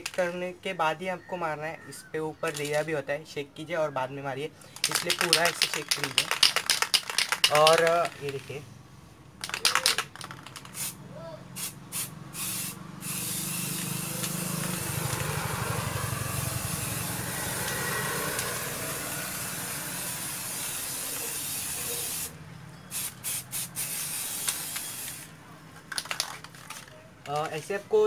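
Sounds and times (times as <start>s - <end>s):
spray paint can hissing: 4.8s - 8.4s, 9.4s - 25.3s.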